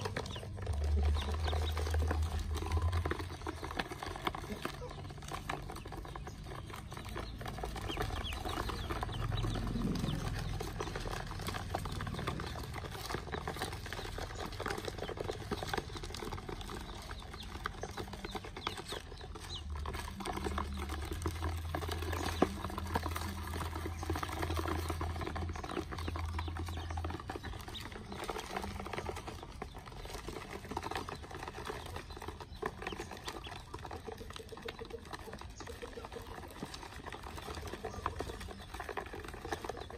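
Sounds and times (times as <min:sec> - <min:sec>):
ducklings peeping: 0:00.0 - 0:39.9
feet pattering on plastic: 0:00.0 - 0:39.9.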